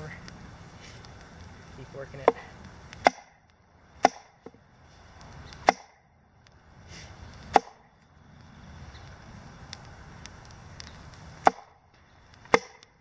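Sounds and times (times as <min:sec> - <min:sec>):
log being struck: 0:00.0 - 0:04.6, 0:05.2 - 0:06.1, 0:07.0 - 0:07.9, 0:09.7 - 0:13.0.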